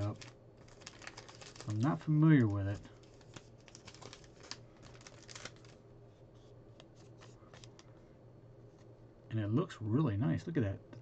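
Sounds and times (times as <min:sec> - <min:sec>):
trading card rustling in plastic sleeve: 0:00.0 - 0:05.8, 0:06.4 - 0:07.9.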